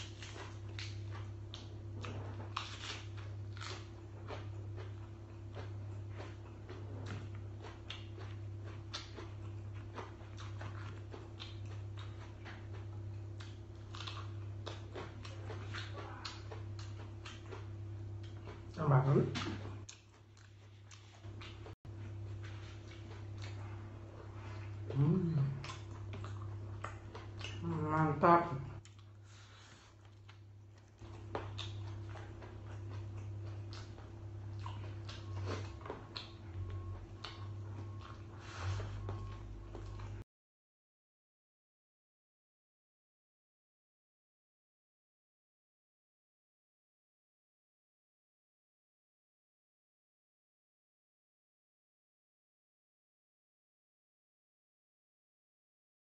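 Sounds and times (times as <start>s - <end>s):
chewing with crunches: 0.0s - 40.2s
low hum: 0.0s - 40.2s.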